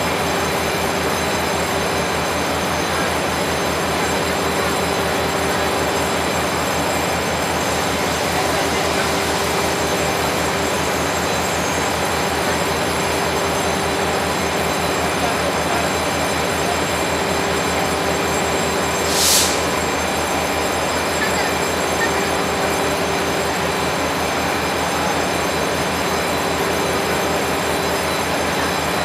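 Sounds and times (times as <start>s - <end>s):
diesel locomotive idling: 0.0s - 29.0s
short air hiss: 19.1s - 19.7s.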